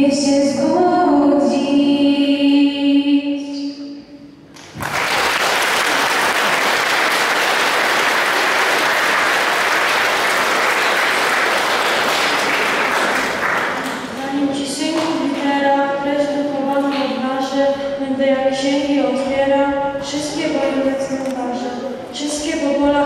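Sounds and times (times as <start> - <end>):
audience applauding: 4.6 - 14.2.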